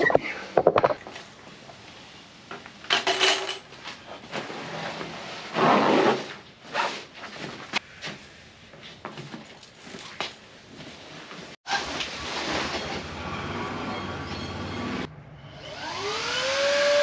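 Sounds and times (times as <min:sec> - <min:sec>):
nylon rustling and scraping on concrete: 0:00.0 - 0:13.4.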